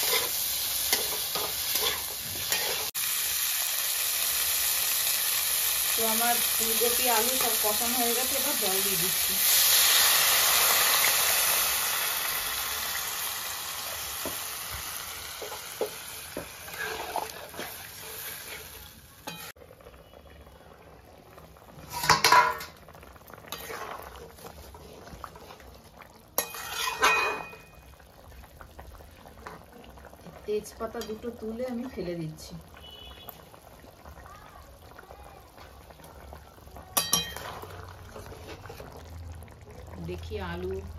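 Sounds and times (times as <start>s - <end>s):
water hissing and sizzling in hot pan: 0.0s - 40.9s
metal lid and ladle clattering: 21.9s - 22.8s, 26.4s - 27.6s.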